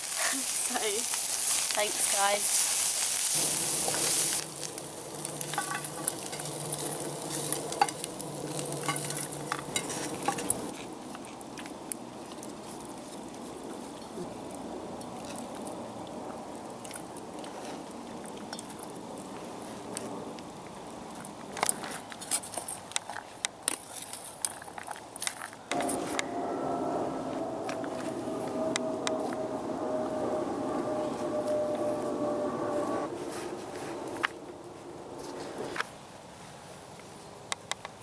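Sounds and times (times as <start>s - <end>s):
bacon sizzling in a frying pan: 0.0s - 10.8s.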